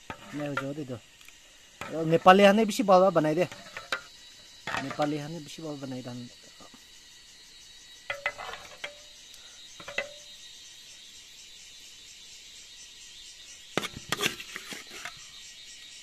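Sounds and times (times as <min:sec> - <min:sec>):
ladle scraping in wok: 0:00.0 - 0:00.8, 0:03.3 - 0:05.2, 0:08.1 - 0:09.0, 0:13.8 - 0:15.2
insects chorus: 0:00.0 - 0:16.0.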